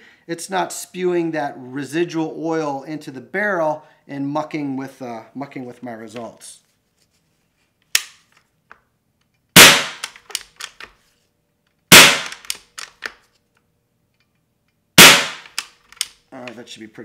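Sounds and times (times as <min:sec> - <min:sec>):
rifle action clicks: 0:09.6 - 0:10.9, 0:11.9 - 0:13.2, 0:15.0 - 0:16.2
air rifle report: 0:16.3 - 0:17.0.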